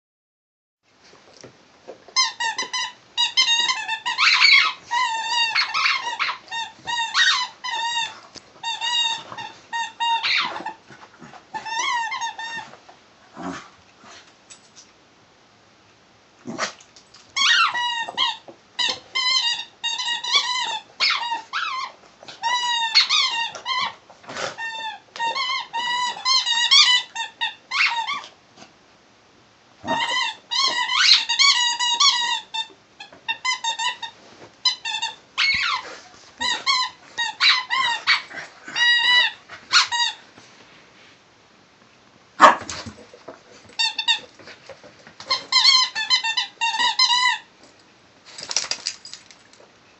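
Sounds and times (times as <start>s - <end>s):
squeaky toy squeaking: 2.2s - 10.8s, 11.5s - 12.7s, 17.4s - 24.0s, 24.6s - 28.3s, 29.8s - 40.2s, 43.7s - 44.3s, 45.2s - 47.5s.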